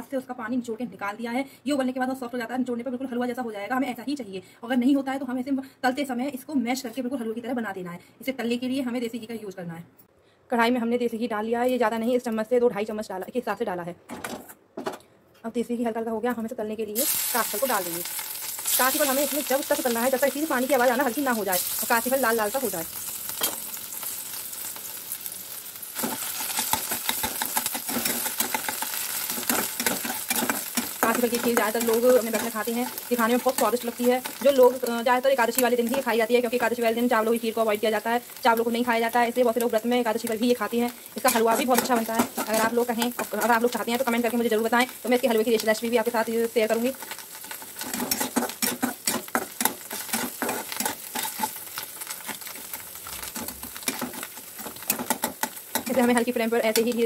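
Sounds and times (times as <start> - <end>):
food sizzling in ghee: 16.8 - 57.0
spoon scraping and clicking pan: 26.0 - 34.4, 41.2 - 43.4, 47.0 - 57.0.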